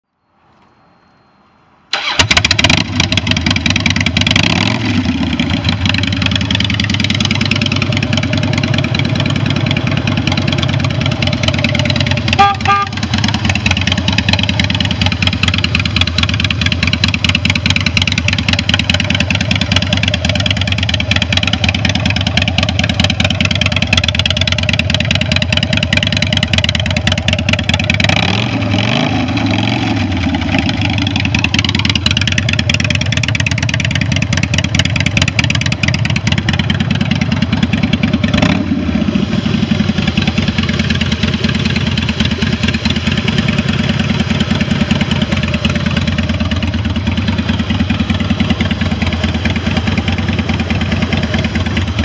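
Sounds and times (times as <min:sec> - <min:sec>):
short beeping tone: 0:00.2 - 0:01.8, 0:12.2 - 0:13.1
motorcycle engine revving and idling: 0:01.9 - 0:52.0.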